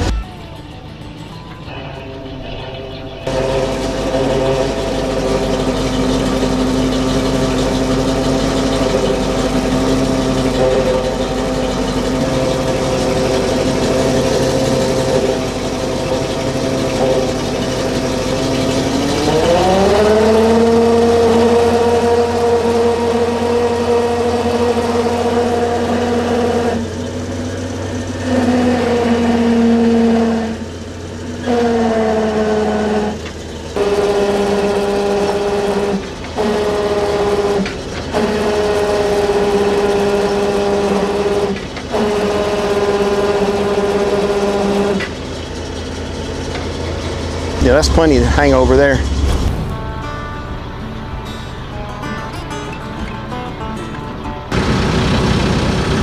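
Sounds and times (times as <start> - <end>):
truck engine idling and revving: 0.0 - 56.0.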